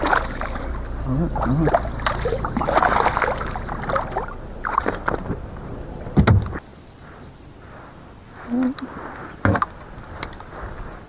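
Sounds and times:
fish thrashing and splashing: 0.0s - 6.2s
hard thump: 6.1s - 6.6s.

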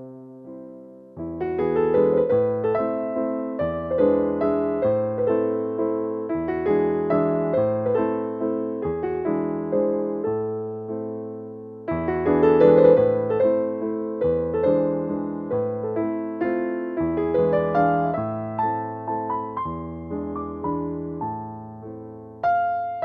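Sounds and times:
piano chords: 0.0s - 23.0s.

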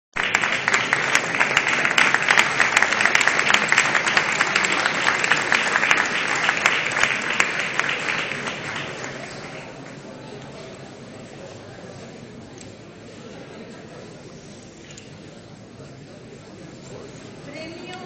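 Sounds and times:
audience applauding: 0.1s - 10.3s.

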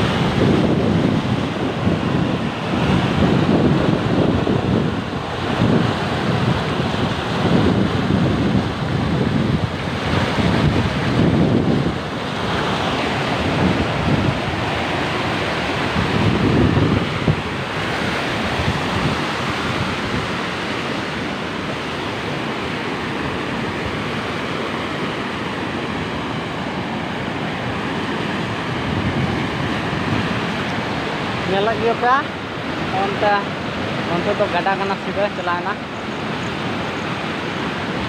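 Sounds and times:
floodwater rushing: 0.0s - 38.0s
wind buffeting microphone: 0.0s - 38.0s.

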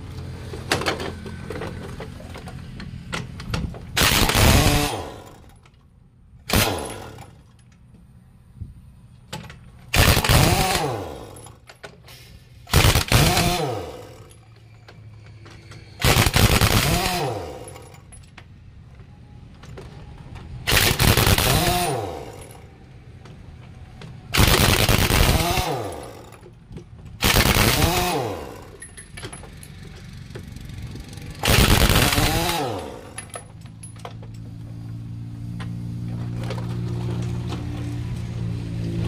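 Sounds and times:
pneumatic impact wrench hammering: 3.1s - 5.7s, 6.4s - 7.6s, 9.3s - 14.6s, 15.6s - 18.3s, 20.6s - 22.7s, 24.3s - 34.9s.

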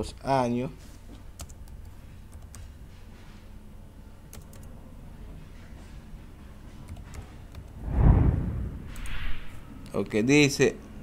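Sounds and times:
keystrokes on computer keyboard: 1.4s - 2.7s, 4.3s - 4.7s, 6.9s - 7.8s
low steady hum: 7.6s - 9.9s.

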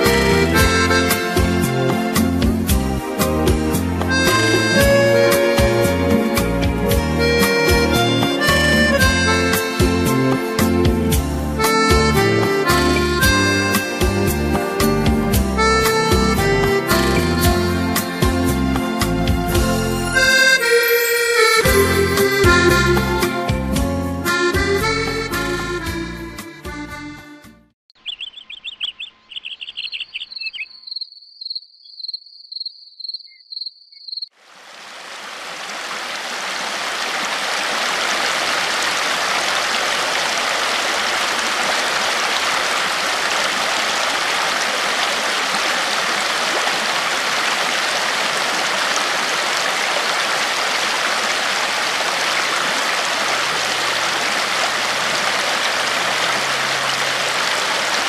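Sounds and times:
shallow river rushing over stones: 34.4s - 58.0s.

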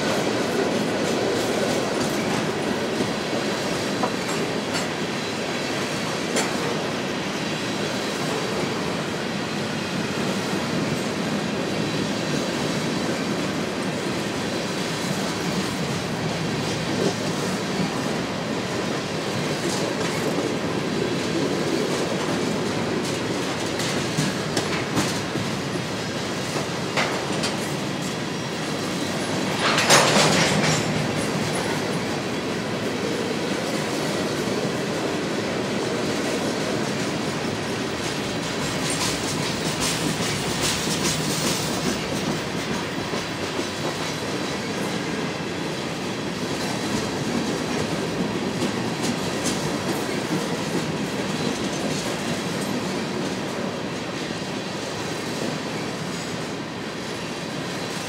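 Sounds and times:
train wheels rumbling on rail: 0.0s - 58.0s
wheels clicking over rail joints: 29.4s - 32.1s.

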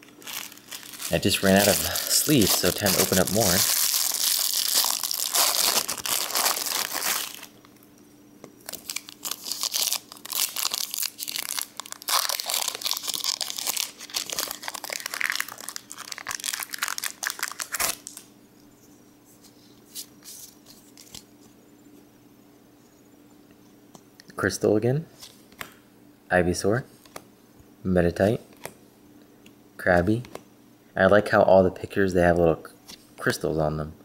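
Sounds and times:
foil wrapper crinkling and tearing: 0.0s - 7.6s, 8.6s - 18.3s
cellophane crinkling: 0.0s - 7.7s, 8.6s - 18.3s
handling cards: 0.0s - 7.8s, 8.5s - 18.3s, 19.3s - 21.4s.

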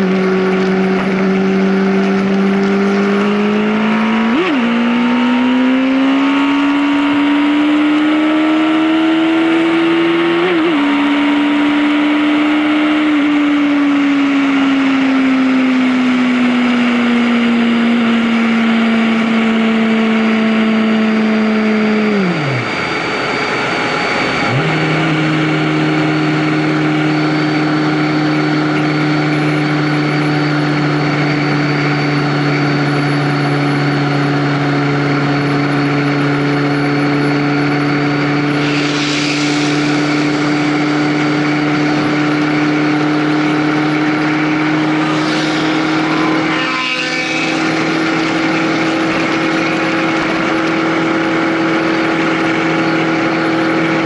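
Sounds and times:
vehicle engine running: 0.0s - 54.0s
short rushing noise: 38.5s - 42.5s, 43.4s - 50.6s.

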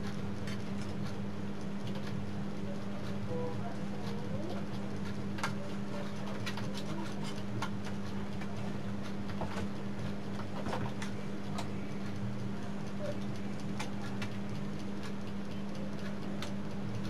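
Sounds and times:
steady low hum: 0.0s - 17.0s
small clicks from handled wires: 4.0s - 17.0s.

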